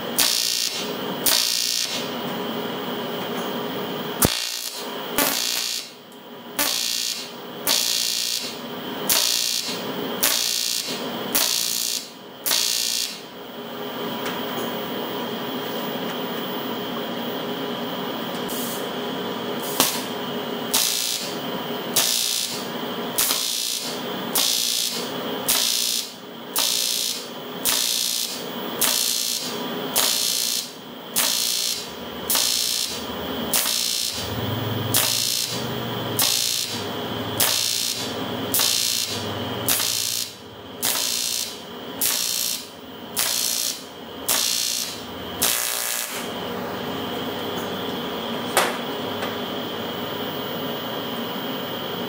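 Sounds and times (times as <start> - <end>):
welding arc crackling and buzzing: 0.0 - 2.2, 4.1 - 13.3, 19.5 - 46.6.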